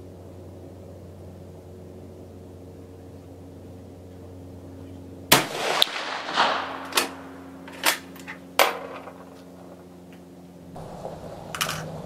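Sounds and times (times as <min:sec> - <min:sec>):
rifle shot: 0:05.3 - 0:08.0.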